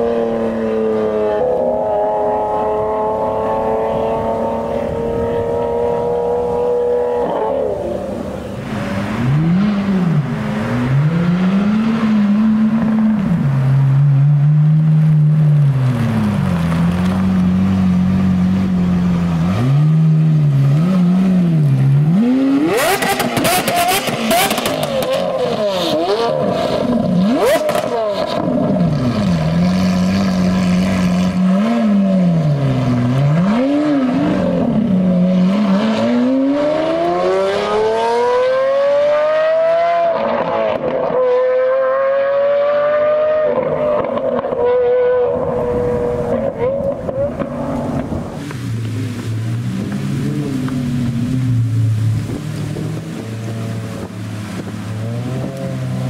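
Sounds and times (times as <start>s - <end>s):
car pulling away: 0.0s - 56.0s
sports car engine revving: 0.0s - 56.0s
exhaust crackling: 42.8s - 56.0s.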